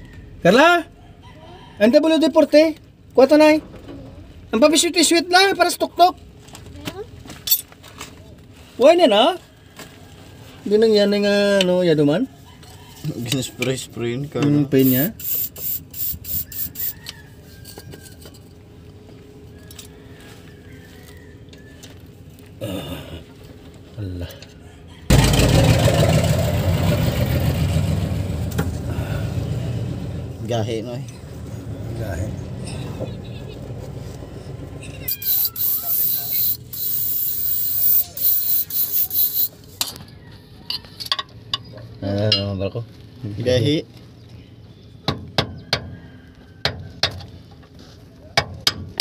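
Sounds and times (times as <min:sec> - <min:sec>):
aerosol spray can hissing: 0:14.8 - 0:17.0, 0:35.1 - 0:39.6.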